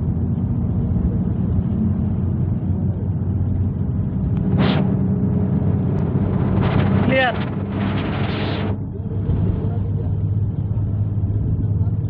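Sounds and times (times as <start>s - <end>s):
bus engine droning: 0.0s - 12.0s.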